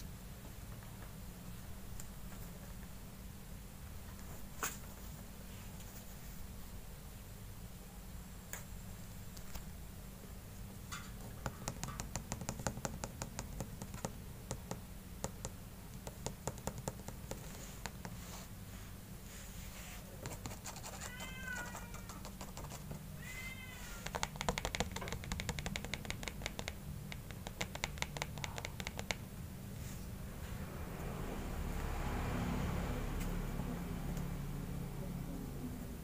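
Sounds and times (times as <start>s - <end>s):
claws scratching on cardboard: 19.7s - 22.9s
kitten meowing: 20.9s - 22.3s, 23.2s - 24.2s.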